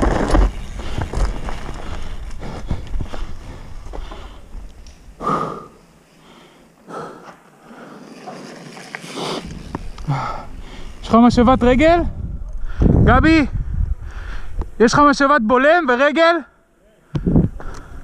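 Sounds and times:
tyres crunching on gravel: 0:00.0 - 0:04.9
bike frame rattling: 0:00.0 - 0:05.1
rider breathing puffs: 0:00.4 - 0:08.2, 0:09.0 - 0:11.0
wind rumble on microphone: 0:09.4 - 0:14.8, 0:17.2 - 0:18.0.

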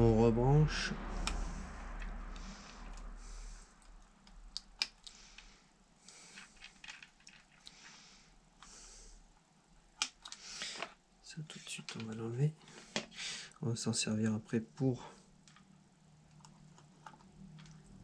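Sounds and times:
faint rustling of wires: 0:00.9 - 0:18.0
connectors clicking: 0:03.8 - 0:05.5, 0:09.8 - 0:11.0.

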